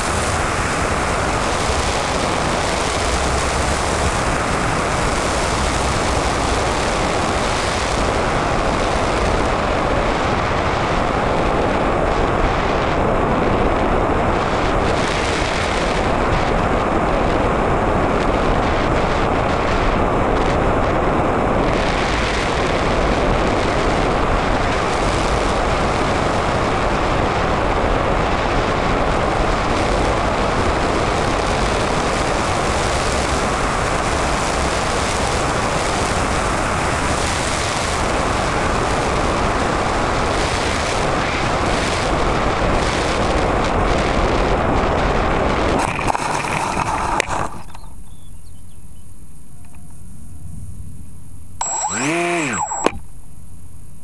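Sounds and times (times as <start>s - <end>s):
model plane flight rush: 0.0s - 43.9s, 45.5s - 47.8s, 51.6s - 53.0s
low wind rumble: 0.0s - 51.6s.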